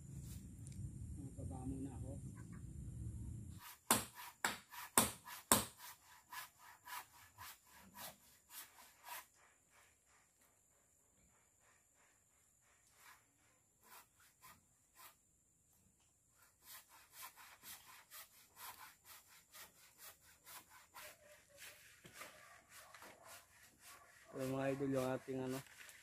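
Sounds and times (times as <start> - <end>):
hand saw cutting timber: 3.5 - 9.8, 13.8 - 15.2, 16.4 - 26.0.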